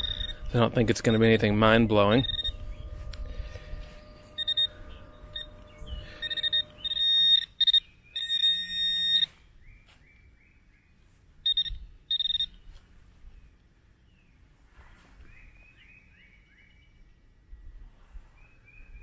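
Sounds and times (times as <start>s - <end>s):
metal detector pinpointer beeping: 0.0s - 9.4s, 11.4s - 12.7s.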